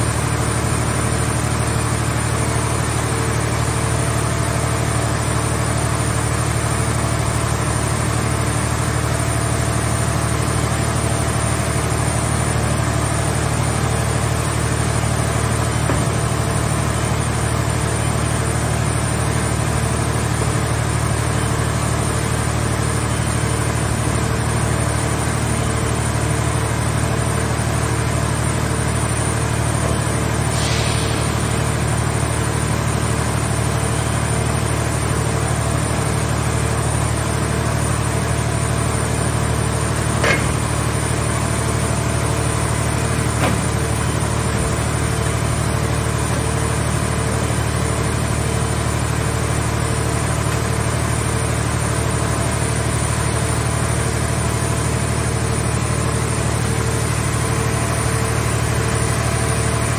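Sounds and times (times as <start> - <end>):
hydraulic power unit droning: 0.0 - 59.9
short knocks: 40.2 - 40.8.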